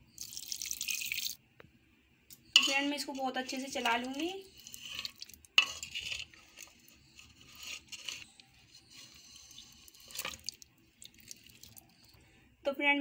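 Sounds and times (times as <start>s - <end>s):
spoon stirring and scraping pot: 2.3s - 12.1s.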